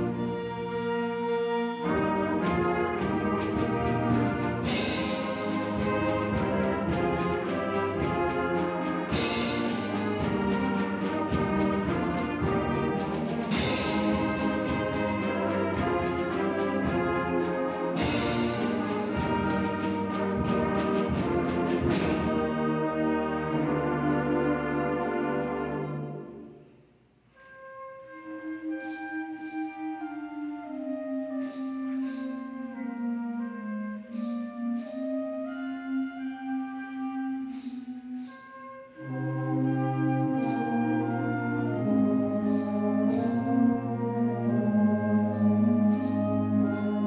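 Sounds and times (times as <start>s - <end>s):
concert band playing: 0.0s - 26.2s.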